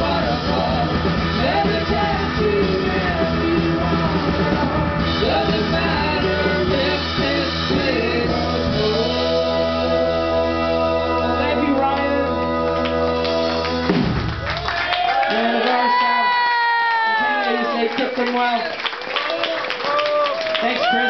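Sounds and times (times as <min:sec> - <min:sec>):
person singing: 0:00.0 - 0:14.1
live rock band playing: 0:00.0 - 0:14.6.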